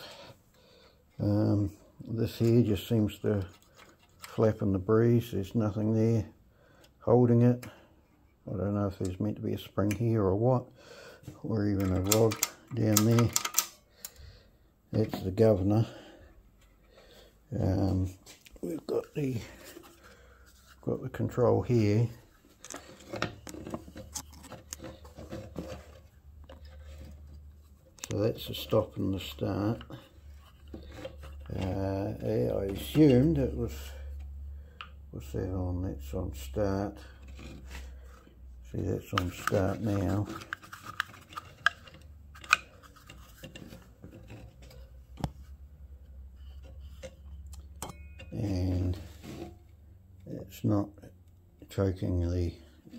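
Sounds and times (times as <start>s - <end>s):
low steady hum: 0.0s - 52.9s
handling rubbing and clicks: 11.4s - 13.8s, 38.8s - 45.5s
metal parts clicking: 11.8s - 14.2s.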